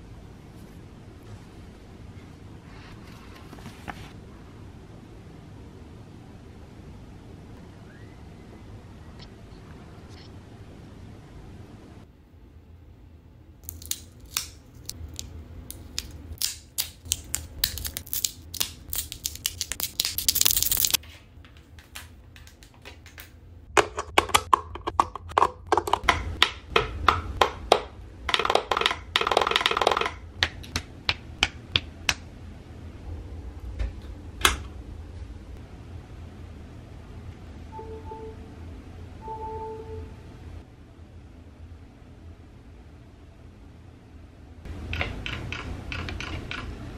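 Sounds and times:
cable crinkling and clicking: 13.6 - 23.4.

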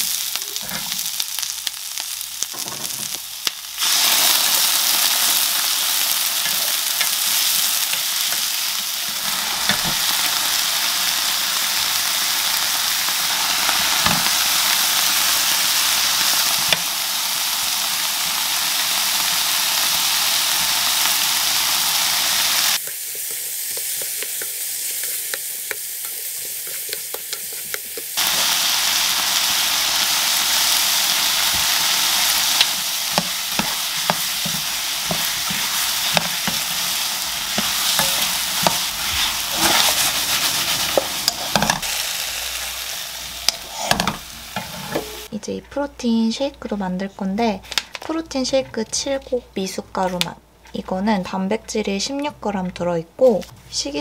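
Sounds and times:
food sizzling in a wok: 0.0 - 46.4
spatula scraping and tapping pan: 9.1 - 10.1, 22.8 - 28.2, 32.6 - 36.8, 37.5 - 40.1, 43.4 - 45.7.

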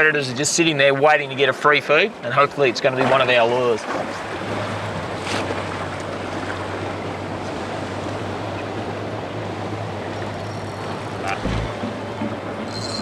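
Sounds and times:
boat engine running: 2.1 - 13.0
low thump: 11.4 - 12.0.

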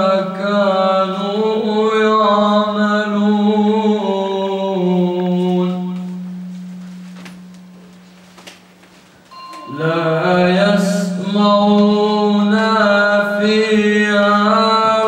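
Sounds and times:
man reciting melodically: 0.0 - 6.2, 9.6 - 15.0.

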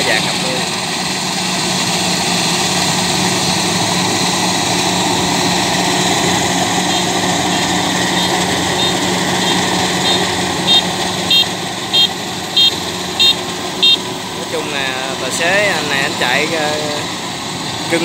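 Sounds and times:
combine harvester engine drone: 0.0 - 18.0
high-pitched beeping: 5.9 - 14.1.

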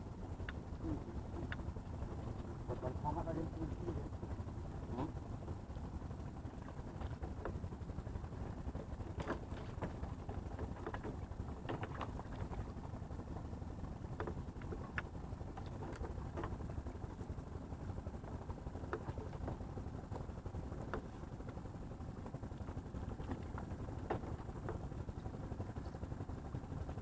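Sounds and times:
sea: 0.0 - 27.0
wind: 0.0 - 27.0
light clicks and knocks: 8.7 - 12.6, 23.1 - 24.9.

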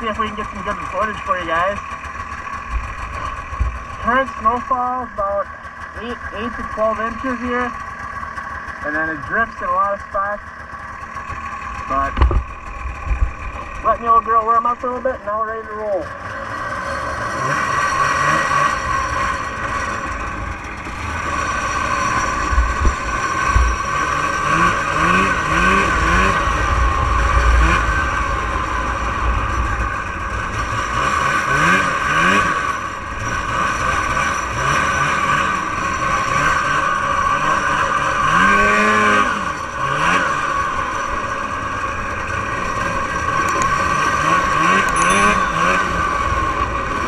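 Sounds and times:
snowmobile engine revving: 0.0 - 47.0.

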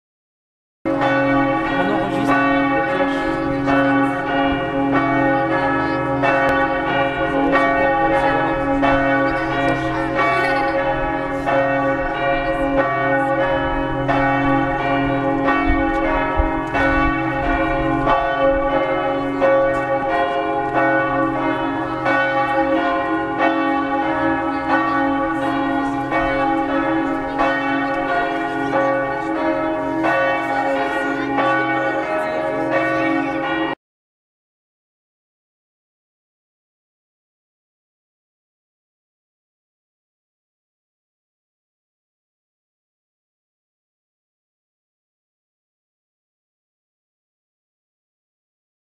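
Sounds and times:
church bells ringing: 0.9 - 33.8.

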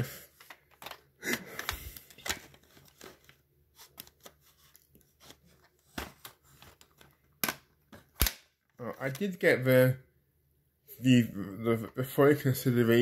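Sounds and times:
plastic cassette cases clicking: 0.4 - 3.3, 6.2 - 8.4.

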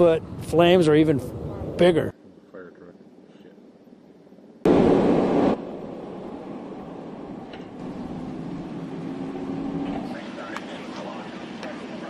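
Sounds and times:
fire engine driving past: 4.7 - 12.0.

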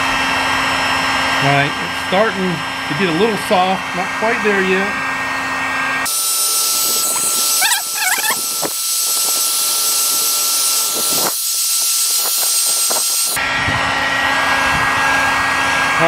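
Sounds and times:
heat gun blowing with whine: 4.0 - 16.0
warbling squeak: 6.9 - 8.7.

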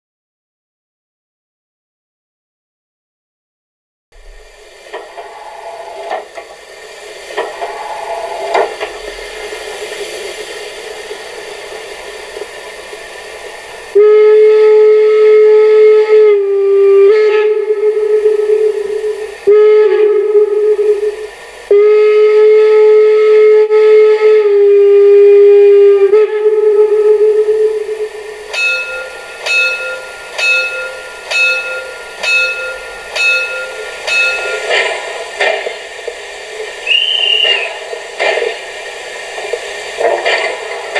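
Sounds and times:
steam hissing: 4.2 - 40.9
steam whistle blasts: 5.2 - 6.2, 7.6 - 9.6, 13.9 - 34.8, 36.8 - 38.0.

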